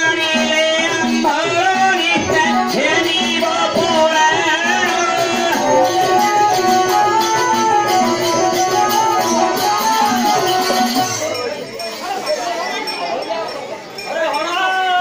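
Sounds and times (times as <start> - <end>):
drum steady beat: 0.0 - 12.0
folk melody of held notes: 4.7 - 11.6.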